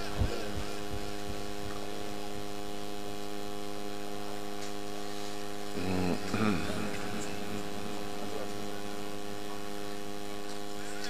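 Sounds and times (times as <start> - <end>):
electrical mains hum: 0.0 - 11.0.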